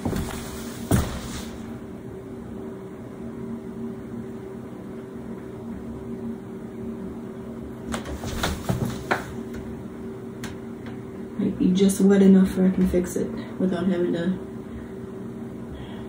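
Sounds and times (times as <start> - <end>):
appliance fan humming: 0.0 - 16.0.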